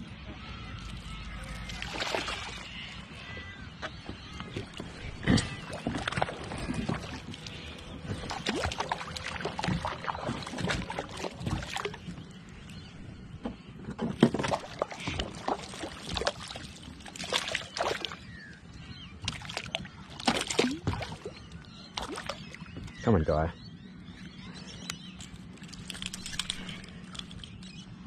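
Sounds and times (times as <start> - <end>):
water splashing against kayak: 3.8 - 12.3, 13.9 - 18.4, 19.2 - 22.9.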